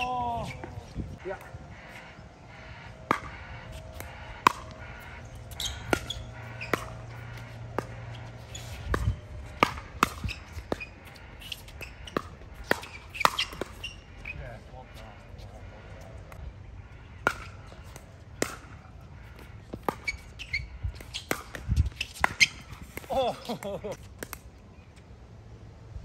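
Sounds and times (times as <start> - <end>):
ball bouncing on court: 2.6 - 14.3, 17.2 - 24.4.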